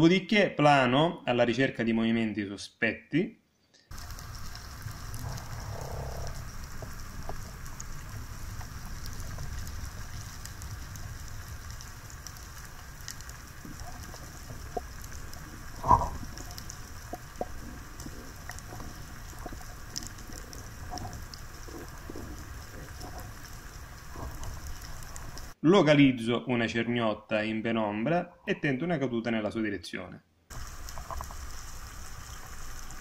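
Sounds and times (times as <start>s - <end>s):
faint clicks and crackle: 3.8s - 25.6s, 30.5s - 33.0s
underwater rumble: 3.9s - 25.6s.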